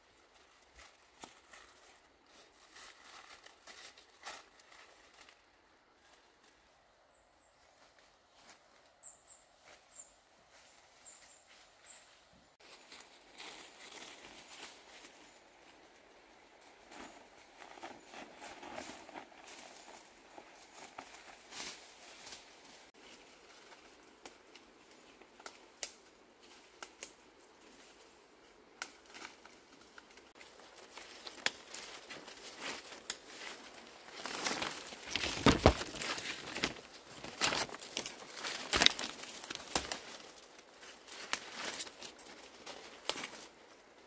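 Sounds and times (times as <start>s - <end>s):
leaves tearing and rustling: 28.8s - 43.6s.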